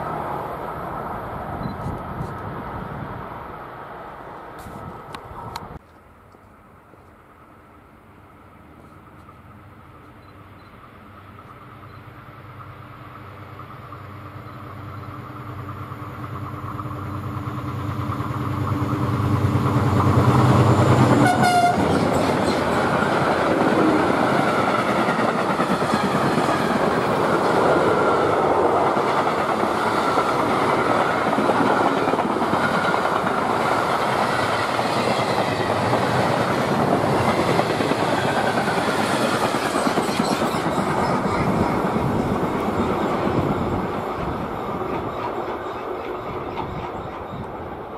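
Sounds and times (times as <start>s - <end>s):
diesel locomotive engine: 0.0s - 47.9s
train wheels rolling on rails: 8.8s - 47.9s
train horn toot: 21.0s - 22.2s.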